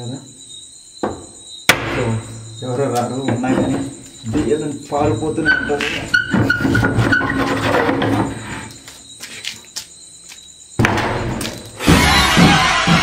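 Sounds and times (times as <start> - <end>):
door squeaks and knocks: 1.0 - 8.7, 10.8 - 13.0
loud door scraping: 3.3 - 8.8, 11.0 - 13.0.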